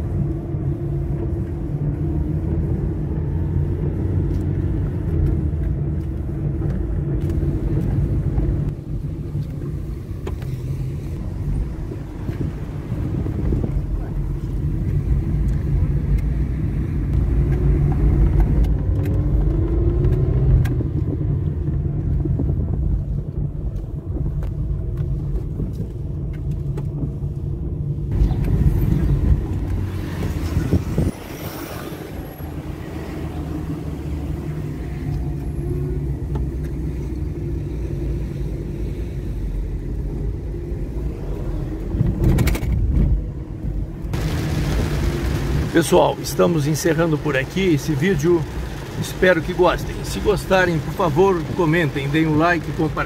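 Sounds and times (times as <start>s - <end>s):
car engine and road noise: 0.0s - 53.0s
loud rushing noise: 44.1s - 50.4s.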